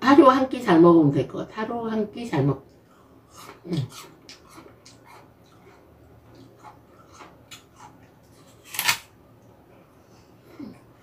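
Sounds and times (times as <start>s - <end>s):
apple chewing crunches: 3.2s - 9.1s.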